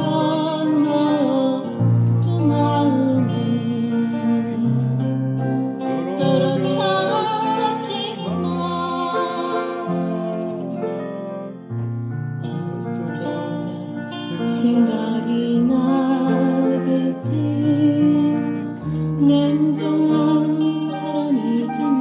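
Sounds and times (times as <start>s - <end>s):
guitar accompaniment: 0.0s - 22.0s
slow ballad on piano: 0.0s - 22.0s.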